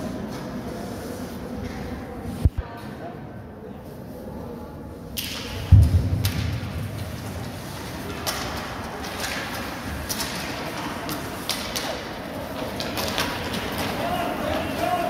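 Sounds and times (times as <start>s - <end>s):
hockey sticks and puck clacking: 5.2s - 15.0s.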